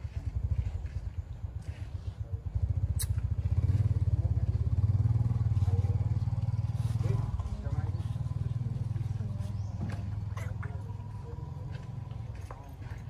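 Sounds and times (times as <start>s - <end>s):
engine running with fast low pulse: 0.0s - 13.0s.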